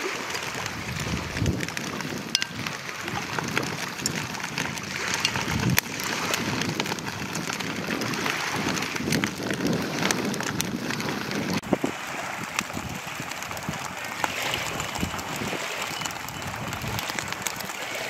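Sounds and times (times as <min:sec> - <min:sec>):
sizzling on a grill: 0:15.0 - 0:17.7.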